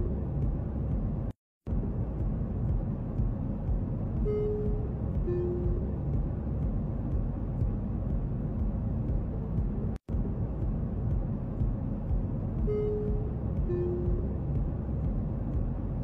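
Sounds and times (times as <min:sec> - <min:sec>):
airliner cabin drone: 0:00.0 - 0:16.0.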